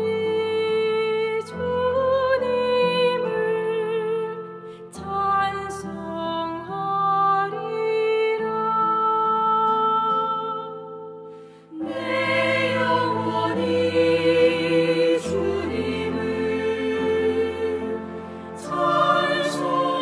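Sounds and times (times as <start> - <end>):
slow hymn music with sustained chords: 0.0 - 20.0
choir voices with vibrato: 11.7 - 20.0.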